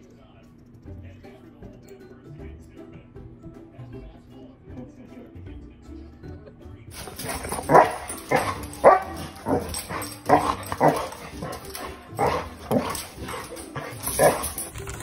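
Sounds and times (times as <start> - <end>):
dog barking: 7.0 - 14.7.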